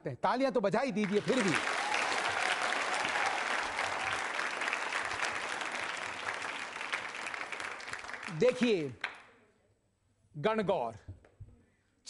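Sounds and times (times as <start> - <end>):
audience applauding: 1.0 - 9.2.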